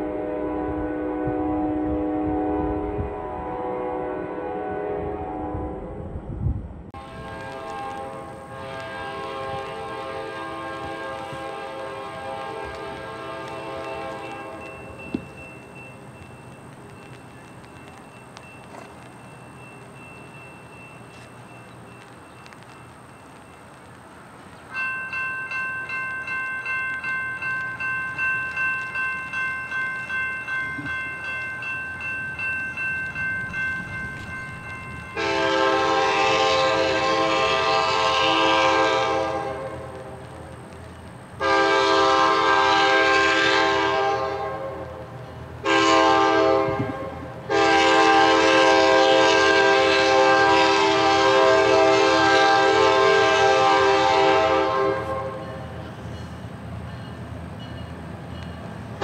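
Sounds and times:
locomotive horn blowing: 0:00.0 - 0:06.0, 0:07.0 - 0:14.9, 0:35.1 - 0:40.0, 0:41.4 - 0:45.0, 0:45.6 - 0:55.6
crossing bell ringing: 0:12.6 - 0:23.8, 0:24.7 - 0:38.7, 0:47.5 - 0:59.0.

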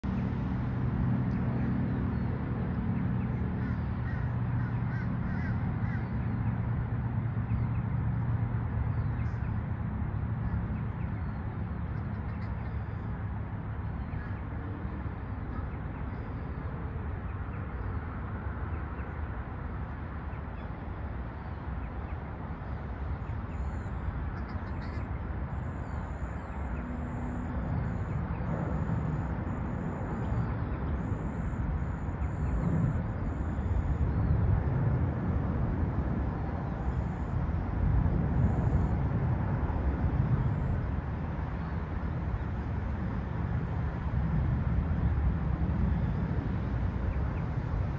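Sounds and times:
low hum and hiss: 0:00.0 - 0:47.9
birds calling: 0:03.1 - 0:06.6.

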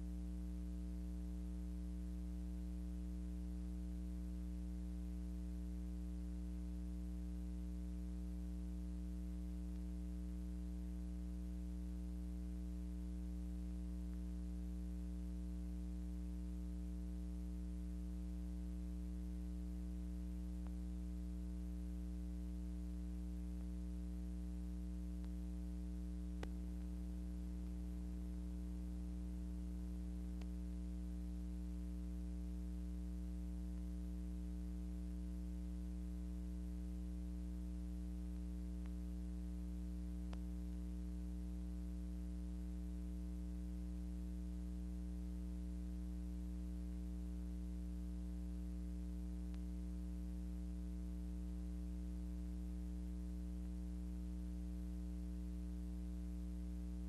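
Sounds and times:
electrical mains hum: 0:00.0 - 0:57.0
faint click: 0:09.7 - 0:10.0, 0:20.6 - 0:20.9, 0:25.2 - 0:25.4, 0:26.3 - 0:27.8, 0:30.4 - 0:30.7, 0:38.3 - 0:39.0, 0:40.3 - 0:40.8, 0:49.5 - 0:49.7.

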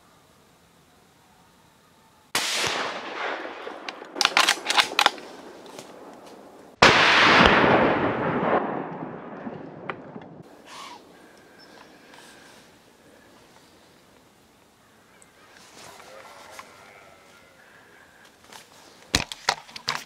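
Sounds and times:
rifle shot echoing: 0:02.4 - 0:12.4.

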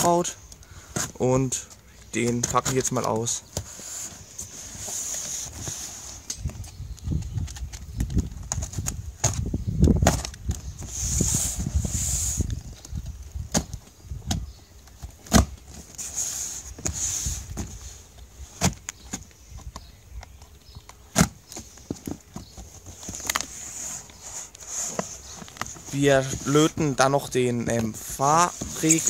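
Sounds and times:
rustling: 0:00.0 - 0:29.0.

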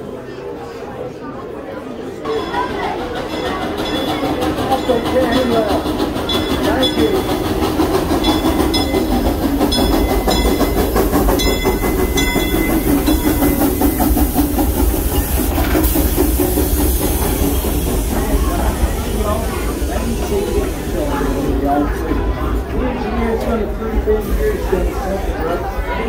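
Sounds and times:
wheels clicking over rail joints: 0:02.3 - 0:21.4
steam hiss: 0:03.7 - 0:22.0.

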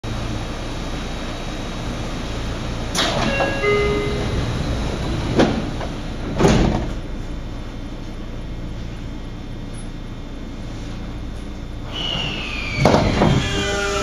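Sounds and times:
steady low hum: 0:00.1 - 0:11.9
train doors closing hiss: 0:02.9 - 0:07.1, 0:11.8 - 0:14.0
brief steady tones: 0:03.3 - 0:04.6
doors shutting thud: 0:05.3 - 0:07.1, 0:12.8 - 0:13.4.

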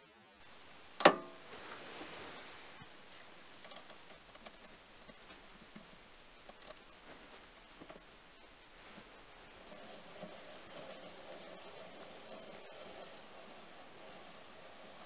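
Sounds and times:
lathe slide clicks and ticks: 0:01.0 - 0:01.4.

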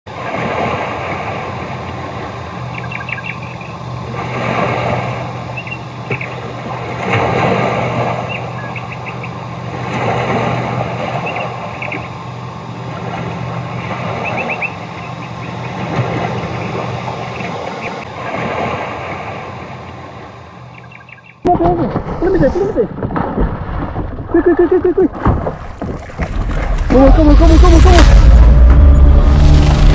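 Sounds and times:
steady low hum: 0:00.1 - 0:29.9
high chirps: 0:02.7 - 0:03.8
rush of noise: 0:26.3 - 0:29.9.

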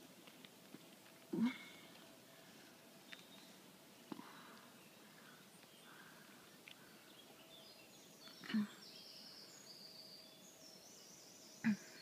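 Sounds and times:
faint high bird chirps: 0:06.8 - 0:12.0.

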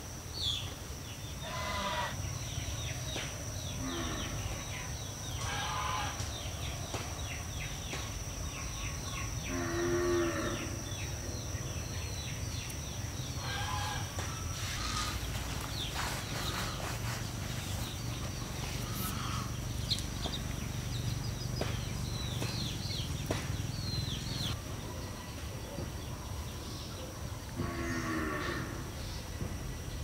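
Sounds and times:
livestock calling: 0:01.4 - 0:02.2, 0:13.4 - 0:19.9.

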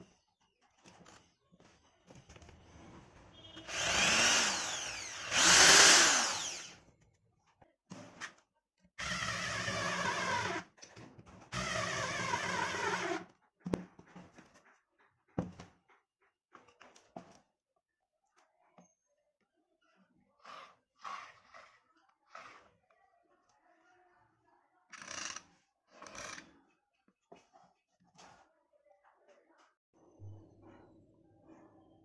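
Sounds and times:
power screwdriver driving screws: 0:03.6 - 0:06.7
electric drill running: 0:03.6 - 0:06.8, 0:09.0 - 0:10.6, 0:11.6 - 0:13.2.

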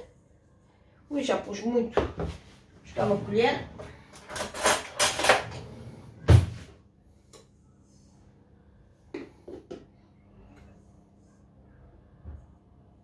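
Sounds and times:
cutlery drawer rummaged: 0:04.1 - 0:05.6.

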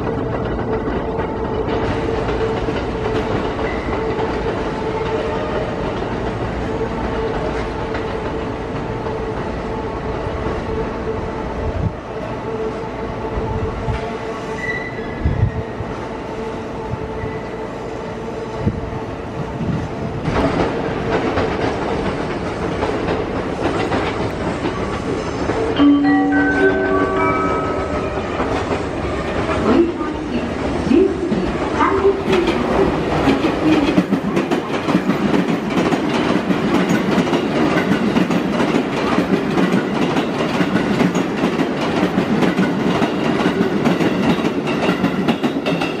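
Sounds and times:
train wheels clacking over rail joints: 0:00.0 - 0:06.3, 0:20.2 - 0:25.8, 0:32.0 - 0:46.0
steady train hum: 0:00.0 - 0:46.0.

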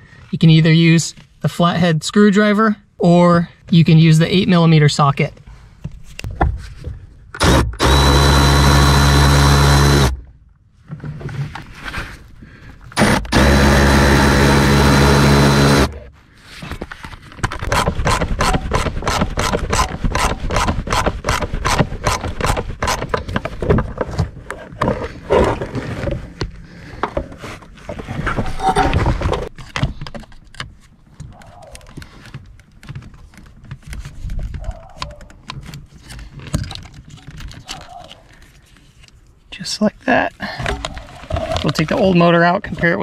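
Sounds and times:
cordless power tool spinning: 0:07.4 - 0:10.2, 0:13.0 - 0:16.1.

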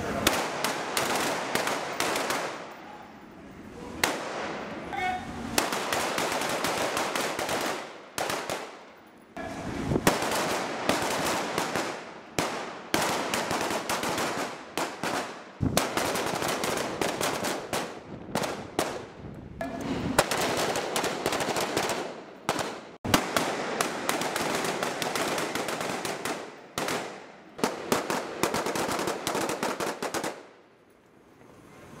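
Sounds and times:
rapid rifle shots: 0:05.6 - 0:08.8, 0:20.2 - 0:30.5.

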